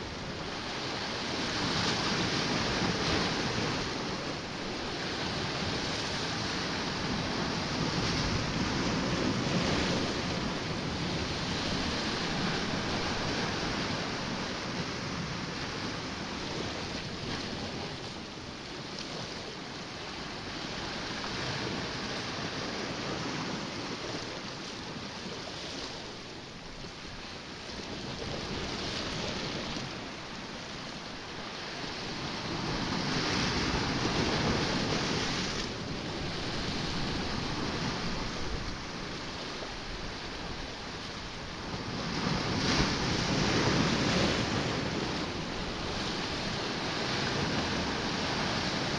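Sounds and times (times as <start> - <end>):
waves washing against rocks: 0.0 - 48.9.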